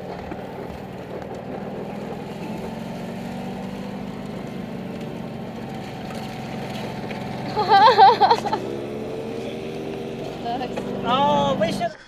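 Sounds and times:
car engine running under load: 0.0 - 12.0.

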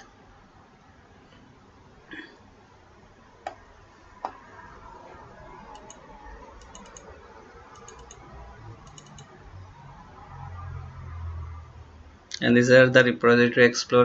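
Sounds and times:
computer mouse clicking: 5.7 - 7.1, 7.7 - 9.3.

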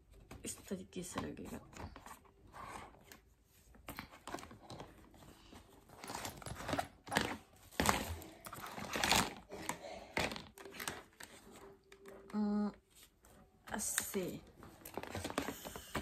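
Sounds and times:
plastic parts clicking and knocking: 5.9 - 12.4.

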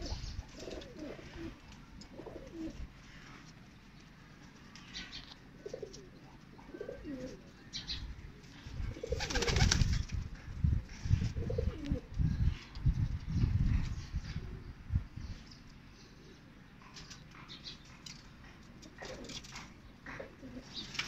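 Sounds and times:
pigeons cooing: 0.0 - 3.5, 5.5 - 7.9, 8.7 - 9.9, 11.3 - 12.2, 16.0 - 21.0.

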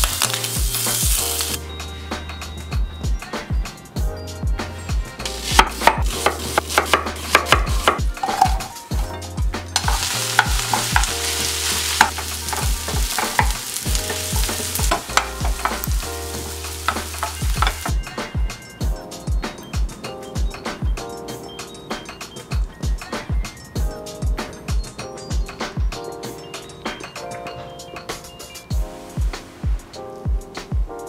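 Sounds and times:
onions sizzling in frying pan: 0.0 - 1.6, 5.2 - 9.1, 9.7 - 18.2
background music with steady beat: 0.0 - 31.0
wooden spatula scraping pan: 5.2 - 9.1, 9.8 - 18.0.

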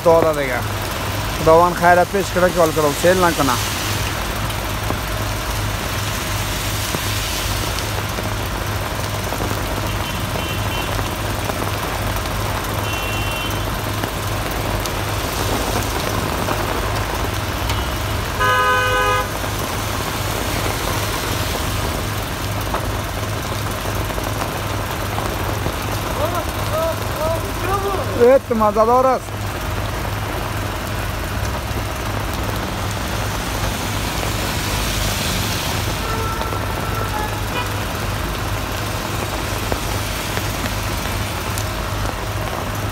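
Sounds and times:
heavy rain hissing on street: 0.0 - 42.9
traffic: 0.0 - 42.9
car horn: 9.9 - 11.0, 12.8 - 13.8, 17.6 - 19.4, 36.0 - 38.0.

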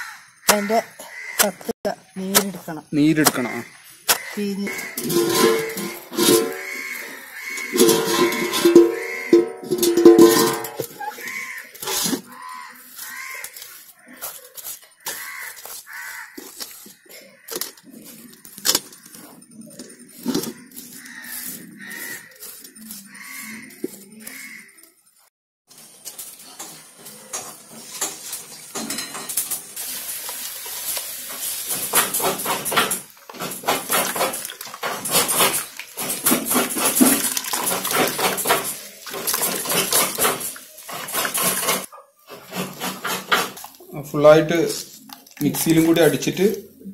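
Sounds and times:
herbs squelching and splashing: 33.8 - 41.3, 44.7 - 46.7.

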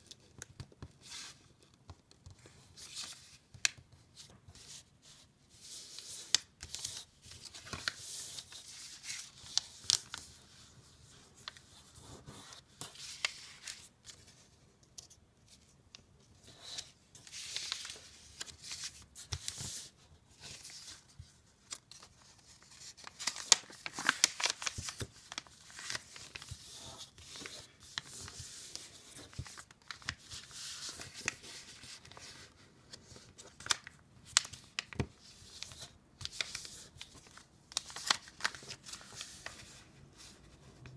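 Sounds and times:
paper rustling and crinkling: 0.0 - 15.7, 16.4 - 40.9
fingers creasing paper folds: 21.6 - 32.5.

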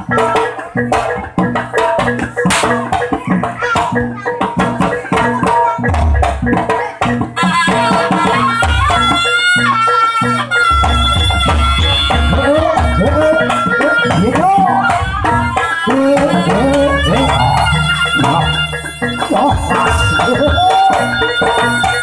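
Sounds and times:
hand drums: 0.0 - 22.0
shrill reed horn melody: 7.4 - 22.0.

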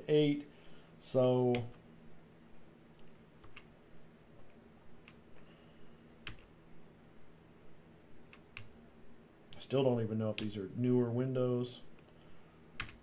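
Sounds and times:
faint low hum: 0.0 - 13.0
computer mouse clicks: 4.5 - 5.2, 8.3 - 8.7.

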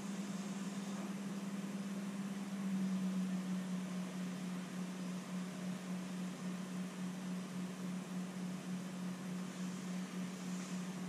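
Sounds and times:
low hum: 0.0 - 11.0
even hiss: 9.3 - 11.0.

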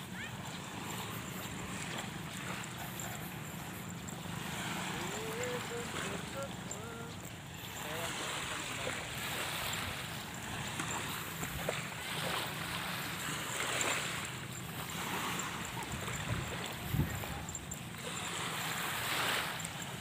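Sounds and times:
surf washing on a sandy beach: 0.0 - 20.0
wind on the microphone: 15.8 - 17.5.

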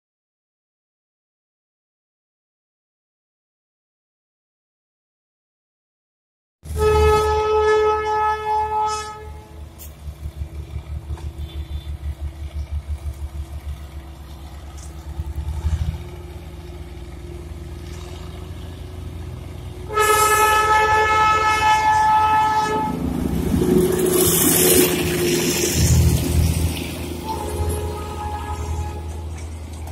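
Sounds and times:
diesel locomotive horn: 6.7 - 9.9, 10.9 - 12.4, 17.8 - 29.8
locomotive engine pulsing: 6.7 - 29.9.

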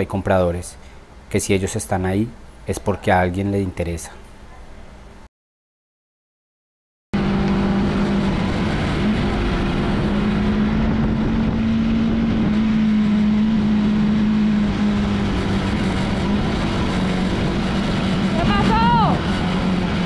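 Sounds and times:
motorcycle engine running: 7.2 - 20.0
road and wind noise: 7.2 - 20.0.

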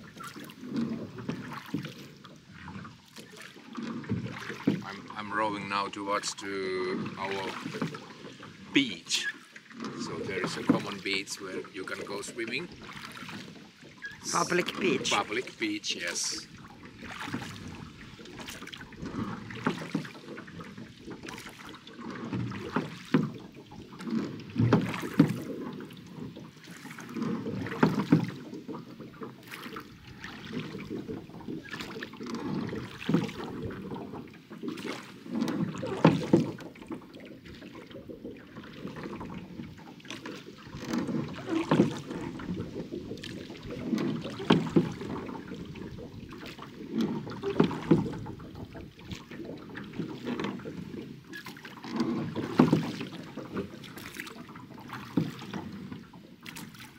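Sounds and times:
oars splashing in water: 0.0 - 56.9
oar knocks: 3.8 - 5.1, 24.0 - 37.6, 38.6 - 56.8.

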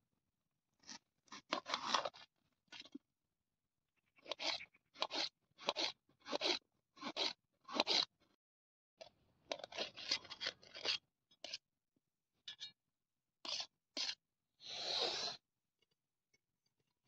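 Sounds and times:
knife cutting raw onion: 4.2 - 8.1, 13.4 - 15.4.

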